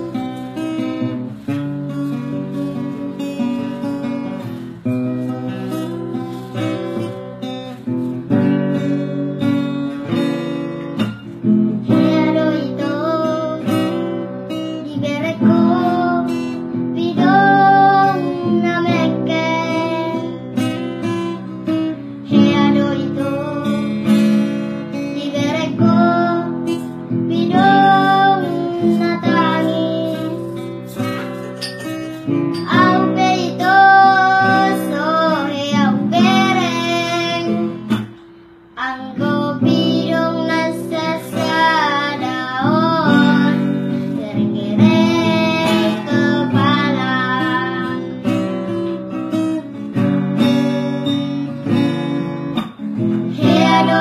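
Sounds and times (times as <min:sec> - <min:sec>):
person singing: 0:00.0 - 0:08.2, 0:11.7 - 0:31.3, 0:32.5 - 0:38.0, 0:38.8 - 0:48.8, 0:53.3 - 0:54.0
strummed acoustic guitar: 0:00.0 - 0:54.0.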